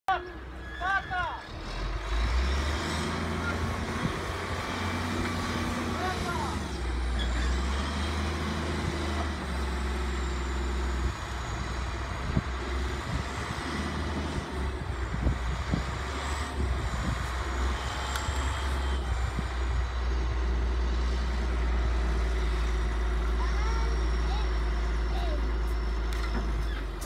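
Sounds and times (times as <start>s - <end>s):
diesel engine humming: 0.1s - 27.0s.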